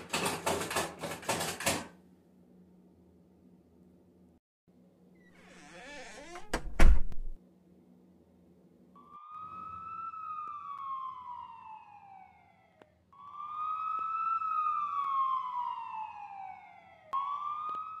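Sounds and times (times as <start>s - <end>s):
emergency vehicle siren wailing: 9.0s - 18.0s.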